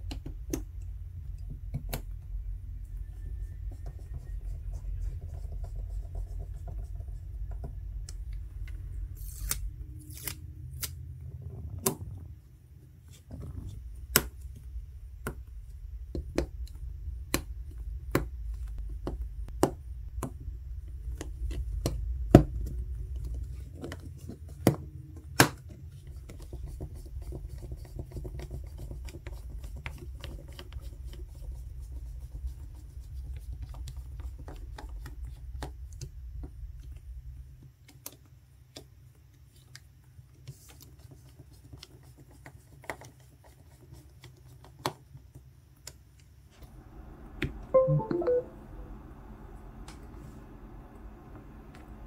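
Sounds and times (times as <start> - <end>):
low steady hum: 0.0 - 24.5, 46.6 - 52.0.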